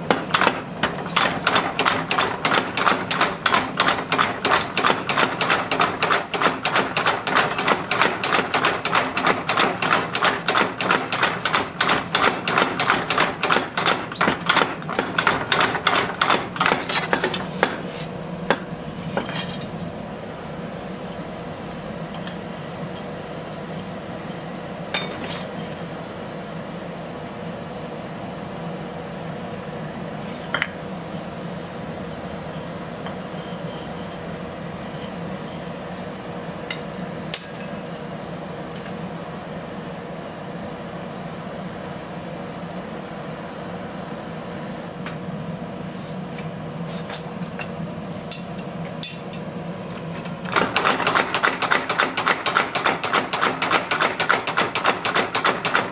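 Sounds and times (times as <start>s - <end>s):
mechanical hum: 0.0s - 55.9s
metallic clinks of tools: 36.7s - 37.9s.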